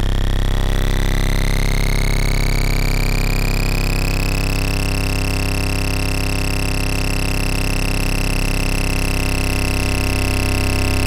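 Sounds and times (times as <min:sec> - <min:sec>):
electronic drone with high tone: 0:00.0 - 0:11.0.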